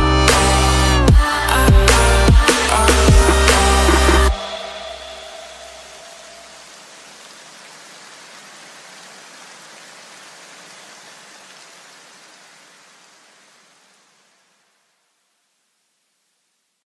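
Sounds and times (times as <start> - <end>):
background music: 0.0 - 6.6
even hiss: 0.0 - 16.8.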